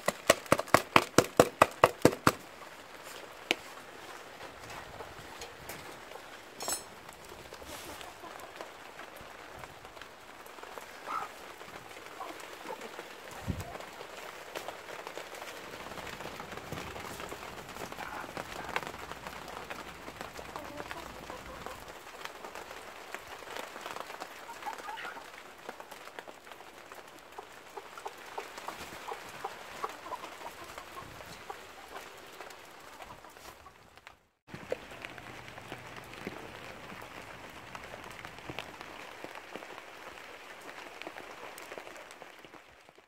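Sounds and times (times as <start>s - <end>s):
hens pecking at feed tray: 0.0s - 33.9s
rain pattering: 0.0s - 43.0s
hens clucking: 2.1s - 22.7s, 23.4s - 25.9s, 27.2s - 33.8s.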